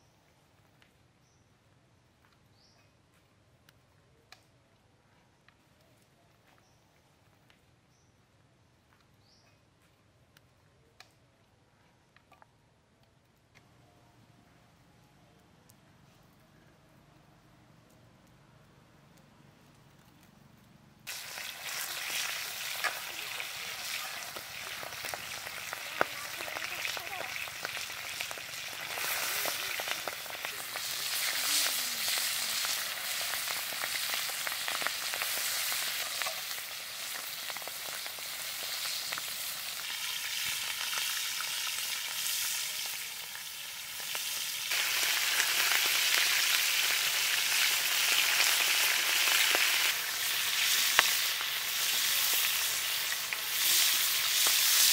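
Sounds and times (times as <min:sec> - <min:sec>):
fish frying in hot oil: 0:21.1 - 0:54.9.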